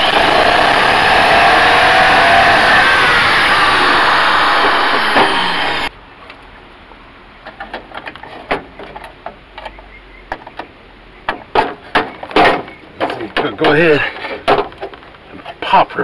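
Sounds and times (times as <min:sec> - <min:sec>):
cordless drill boring metal: 0:00.0 - 0:05.9.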